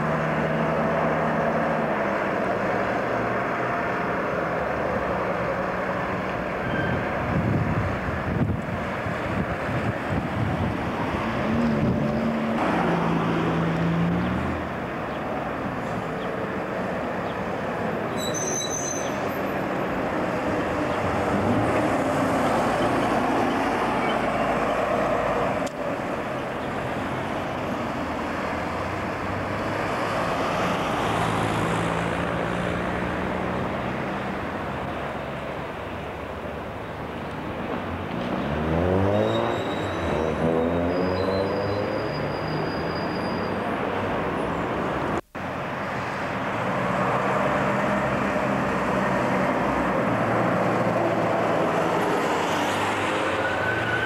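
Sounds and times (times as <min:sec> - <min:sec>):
bus diesel engine passing: 0:00.0 - 0:54.0
street traffic: 0:00.0 - 0:54.0
high-pitched squeal: 0:18.1 - 0:19.6, 0:39.0 - 0:43.7, 0:53.1 - 0:54.0.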